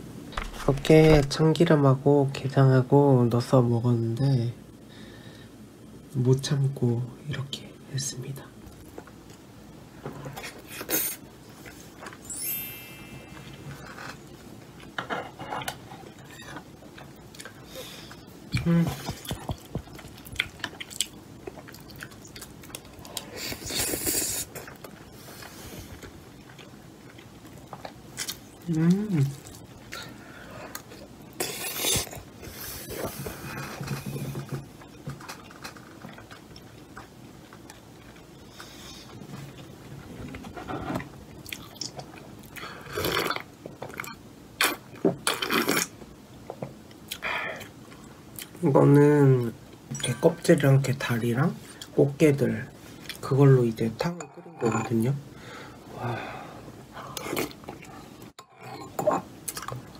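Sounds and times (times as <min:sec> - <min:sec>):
quiet chewing: 0:14.8 - 0:45.9.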